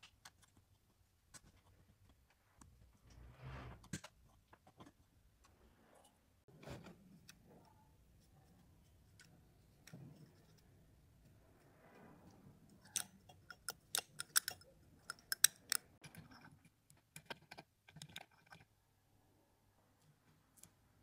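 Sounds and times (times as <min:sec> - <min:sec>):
metal pick scraping and clicking: 0:12.8 - 0:18.7.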